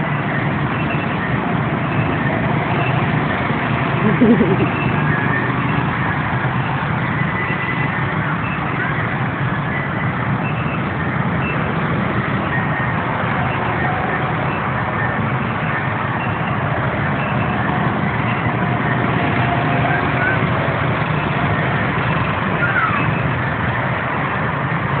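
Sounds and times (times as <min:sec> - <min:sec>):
boat motor humming: 0:00.0 - 0:09.8
constant wash of noise: 0:00.0 - 0:25.0.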